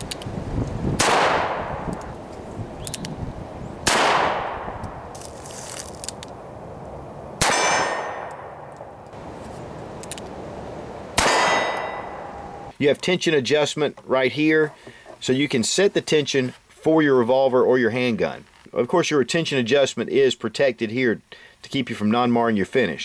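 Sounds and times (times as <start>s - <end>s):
revolver shots echoing: 3.8s - 4.8s, 7.4s - 9.0s, 11.1s - 12.6s.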